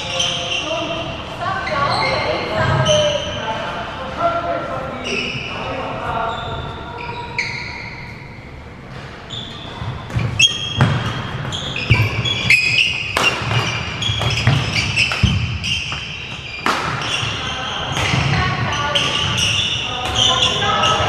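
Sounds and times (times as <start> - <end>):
shoes squeaking on wooden floor: 8.9 - 21.0
racket hitting shuttlecock: 11.8 - 20.3.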